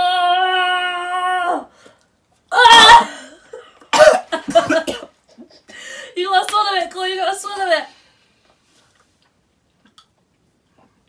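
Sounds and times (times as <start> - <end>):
long held vocal cry: 0.0 - 1.7, 2.5 - 3.2
man coughing and gagging: 2.7 - 5.7.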